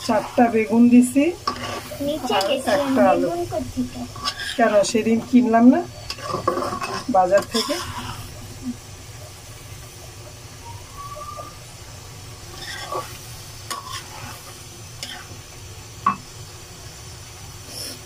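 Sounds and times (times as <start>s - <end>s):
metal spatula scraping pan: 0.0s - 3.4s, 4.1s - 8.4s, 12.5s - 15.4s
food sizzling in frying pan: 0.0s - 18.0s.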